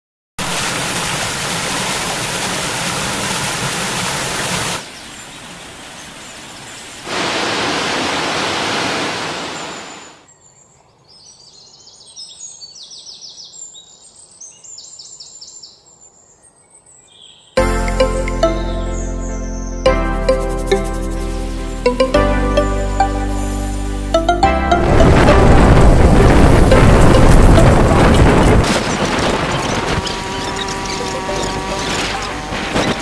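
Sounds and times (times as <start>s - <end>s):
water rushing over rocks: 0.4s - 10.1s, 24.7s - 33.0s
birds chirping: 26.5s - 33.0s.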